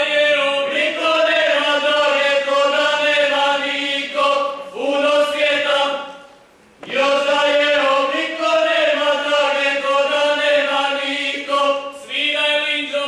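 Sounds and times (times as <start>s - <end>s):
group singing folk song: 0.0s - 6.2s, 6.8s - 13.0s.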